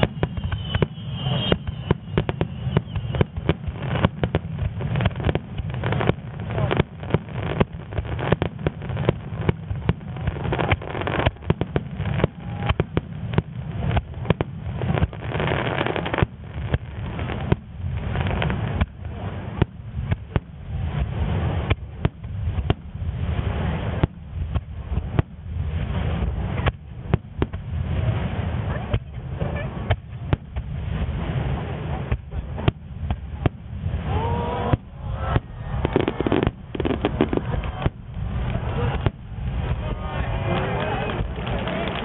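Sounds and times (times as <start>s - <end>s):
deep rumble: 16.2s - 42.0s
firework shells bursting: 34.6s - 39.4s.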